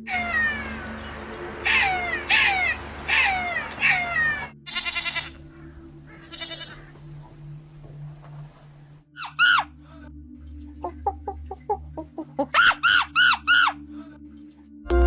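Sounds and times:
jackal yelping: 0:00.0 - 0:07.3, 0:09.2 - 0:09.8, 0:12.4 - 0:13.9
goat bleating: 0:01.7 - 0:05.5, 0:06.1 - 0:07.0.

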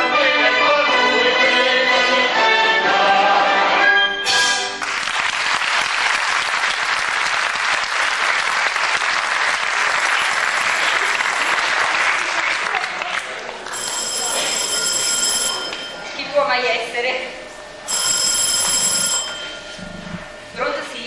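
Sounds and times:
audience applause: 0:04.8 - 0:14.4.

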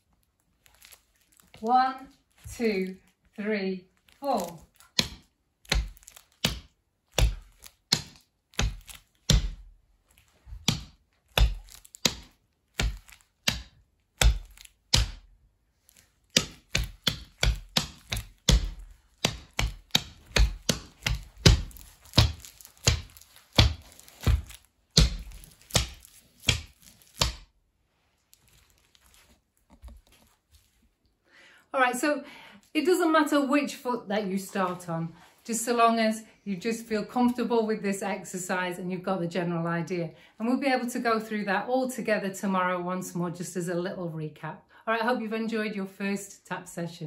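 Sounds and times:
tap steps knocking on a board: 0:16.4 - 0:27.4.

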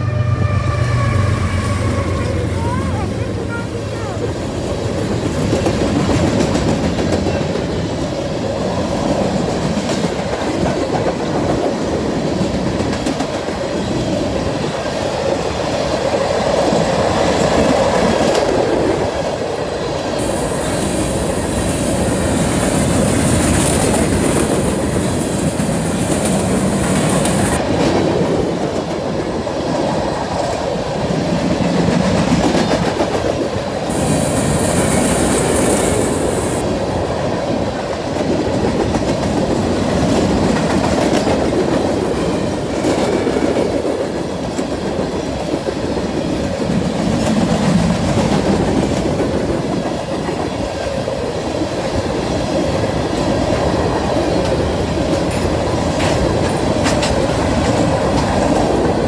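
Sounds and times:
high-pitched wheel squeal: 0:00.0 - 0:02.7
train wheels rumbling on rails: 0:00.0 - 0:59.0.

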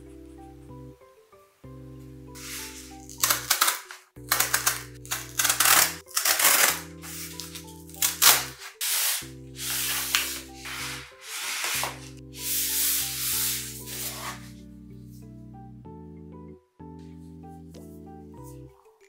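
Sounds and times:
soft background music: 0:00.0 - 0:19.0
cardboard box sliding out: 0:02.4 - 0:03.0, 0:08.6 - 0:14.5
cardboard tearing: 0:02.4 - 0:12.1.

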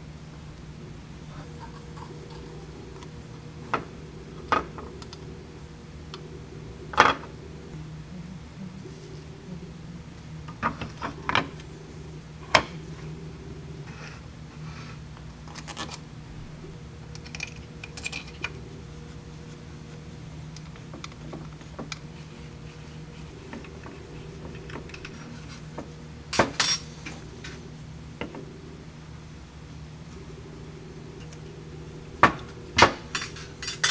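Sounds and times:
steady low hum: 0:00.0 - 0:33.9
metal parts clinking on metal plate: 0:26.3 - 0:26.9, 0:33.1 - 0:33.9.

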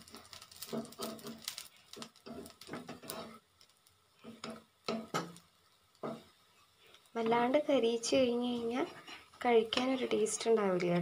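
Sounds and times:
spatula scraping on griddle: 0:00.0 - 0:03.5, 0:04.2 - 0:05.4, 0:08.5 - 0:10.4.

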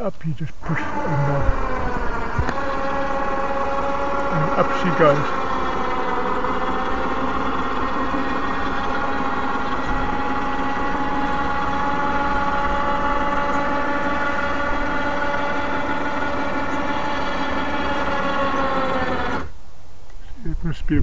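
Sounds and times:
electric motor whining: 0:00.6 - 0:19.6.

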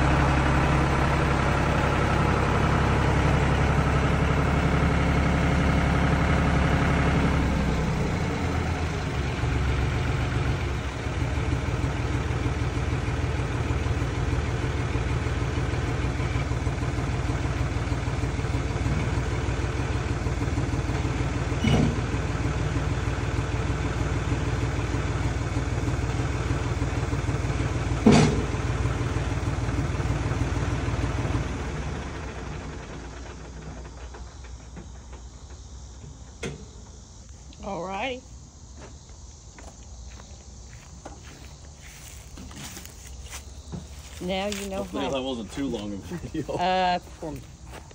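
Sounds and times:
tractor diesel engine running: 0:00.0 - 0:47.9
sharp knocks: 0:28.0 - 0:28.5.

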